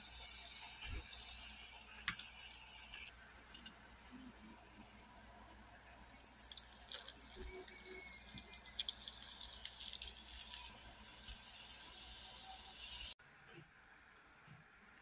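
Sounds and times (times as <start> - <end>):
soda fizzing pour over ice: 6.2 - 13.2.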